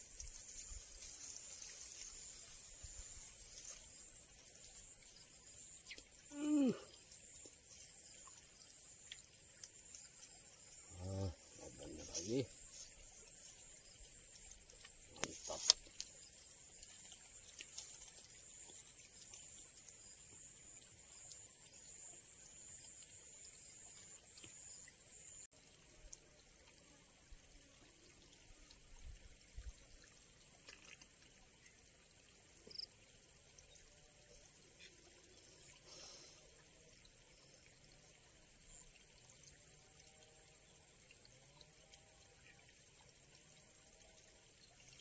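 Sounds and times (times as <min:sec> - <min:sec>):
insects chirring: 0:00.0 - 0:25.5, 0:31.6 - 0:39.6.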